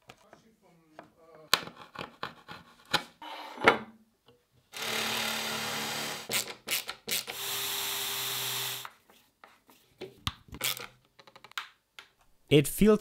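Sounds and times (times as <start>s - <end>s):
cordless drill driving screws: 4.8s - 8.9s.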